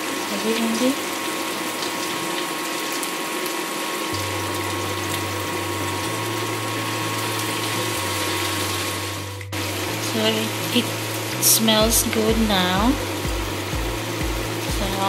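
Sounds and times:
food sizzling in a frying pan: 0:00.0 - 0:15.0
low steady hum: 0:04.2 - 0:15.0.

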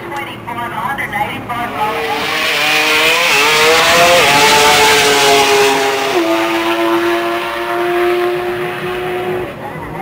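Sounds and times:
race car engine accelerating: 0:01.6 - 0:09.6.

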